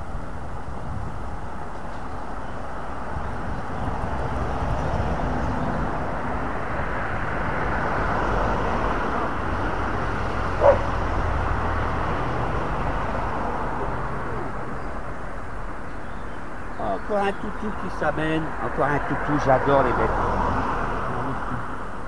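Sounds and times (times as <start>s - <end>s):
outdoor rushing noise: 0.0s - 22.0s
dog bark: 10.6s - 11.0s.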